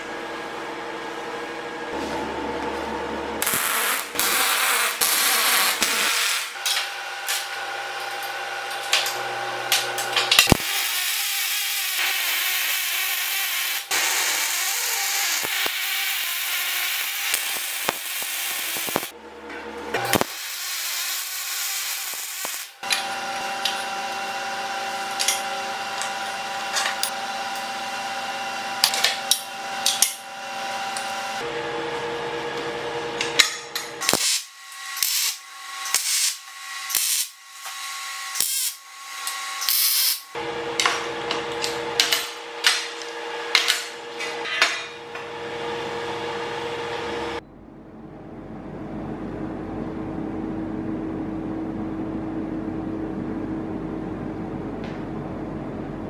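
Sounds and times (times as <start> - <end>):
welding arc crackling and hissing: 3.4 - 19.1, 20.0 - 23.8, 34.0 - 40.4.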